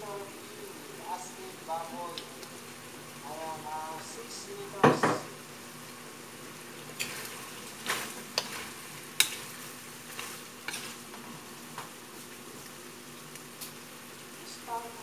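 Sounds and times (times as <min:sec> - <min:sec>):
food sizzling in a wok: 0:00.0 - 0:15.0
metal spoon scraping a pan: 0:06.9 - 0:11.0.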